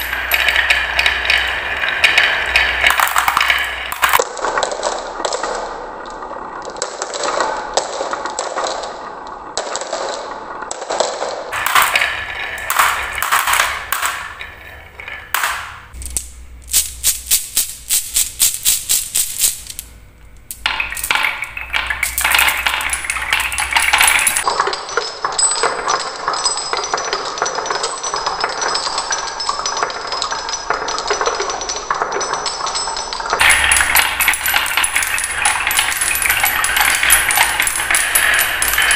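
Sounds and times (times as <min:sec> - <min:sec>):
metal bars ringing: 0:00.0 - 0:04.2, 0:11.6 - 0:16.2, 0:20.6 - 0:30.4, 0:32.3 - 0:38.9
marbles dropping into plastic truck: 0:00.0 - 0:05.8, 0:06.6 - 0:19.8, 0:33.3 - 0:38.9
marbles clattering down wooden run: 0:00.0 - 0:38.9.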